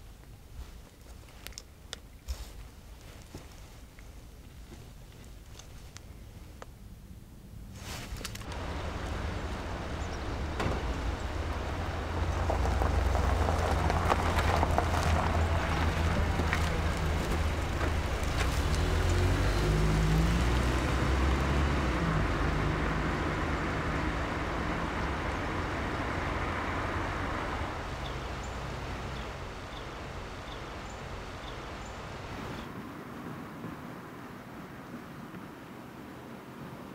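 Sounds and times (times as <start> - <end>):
car driving off: 8.4 - 32.8.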